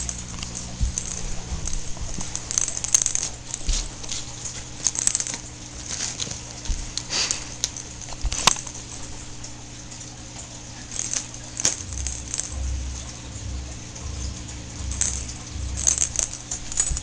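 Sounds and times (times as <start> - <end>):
kittens scuffling on carpet: 0.0 - 8.8.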